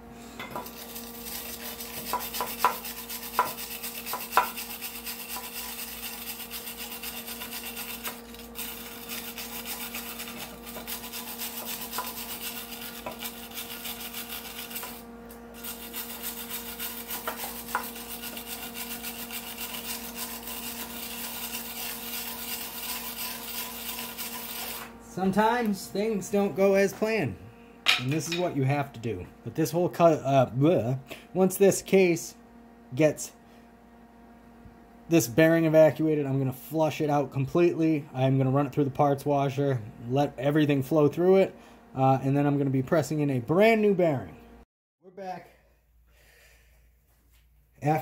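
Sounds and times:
wire brush scrubbing metal: 0.6s - 25.3s.

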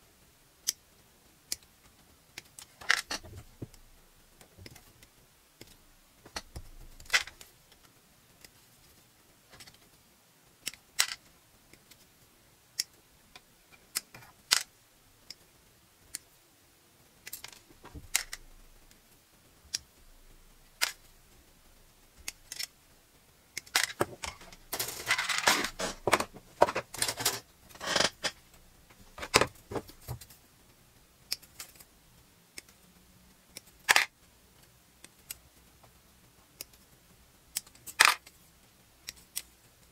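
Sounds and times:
plastic parts clattering and rustling: 2.6s - 3.8s, 6.3s - 7.5s, 23.6s - 30.4s, 33.9s - 34.1s.

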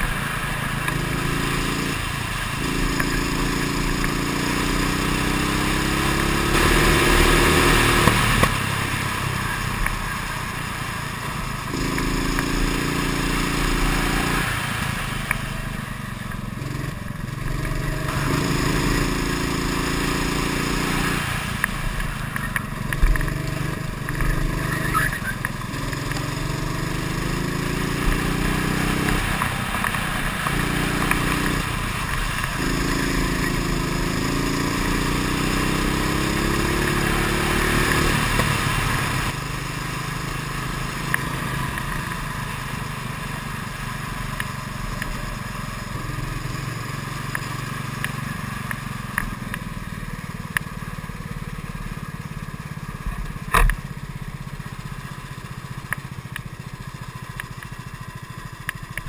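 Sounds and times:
kart engine revving: 0.0s - 55.0s.

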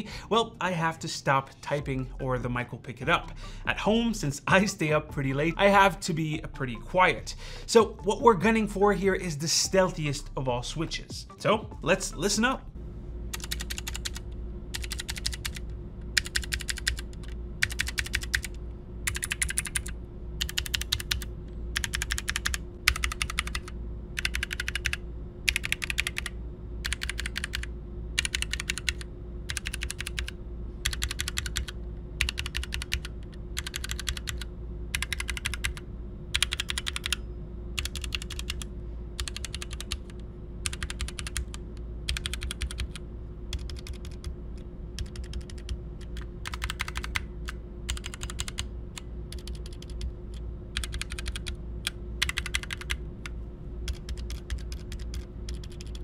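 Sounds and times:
mechanical keyboard keystrokes: 13.4s - 14.2s, 14.8s - 15.6s, 16.2s - 35.8s, 36.4s - 37.2s, 37.8s - 40.1s, 40.7s - 44.4s, 45.0s - 48.6s, 49.3s - 53.0s, 53.9s - 56.0s.

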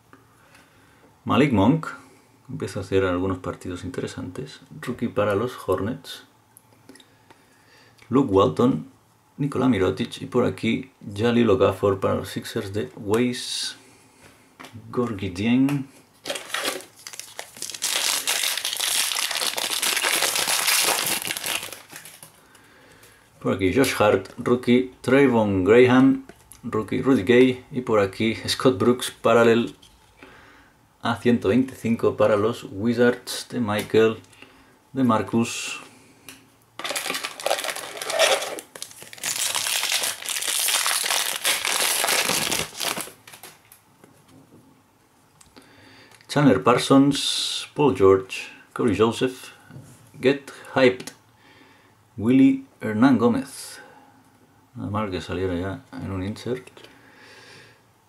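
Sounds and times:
foil wrapper crinkling: 16.2s - 22.4s, 36.8s - 43.7s.

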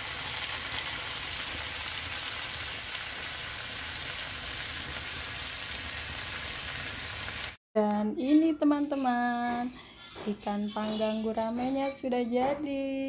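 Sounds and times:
fish sizzling on grill: 0.0s - 7.6s.

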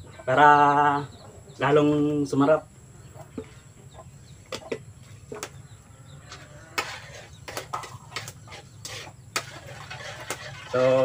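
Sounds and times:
spatula scraping in a wok: 6.3s - 11.0s.

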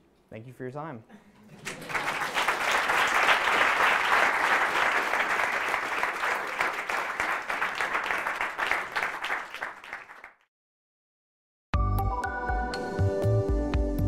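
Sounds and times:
audience applauding: 1.5s - 10.4s.

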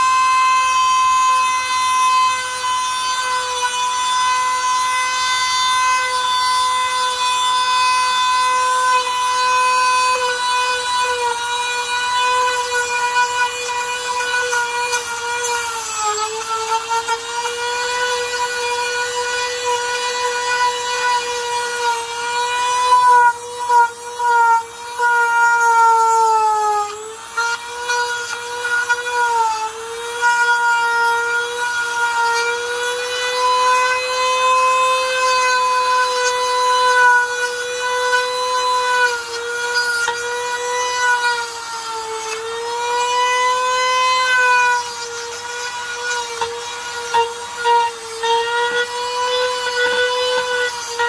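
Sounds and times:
rotary power tool grinding: 0.0s - 51.0s.

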